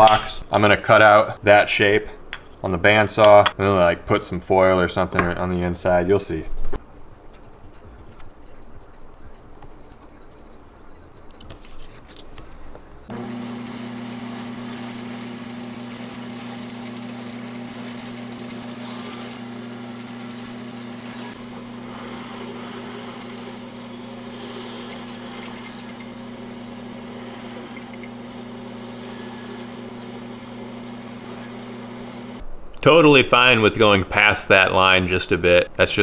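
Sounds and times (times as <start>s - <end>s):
bandsaw cutting wood: 13.1s - 32.4s.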